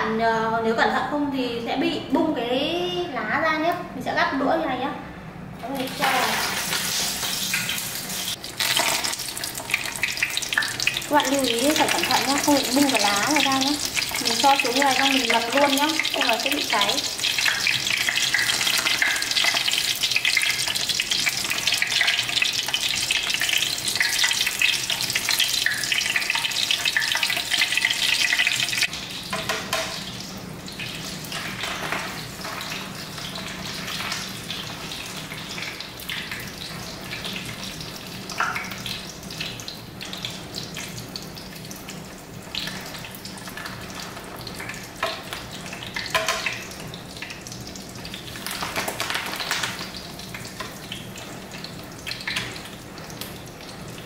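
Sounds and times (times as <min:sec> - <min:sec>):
oil sizzling in a frying pan: 0:05.6 - 0:54.0.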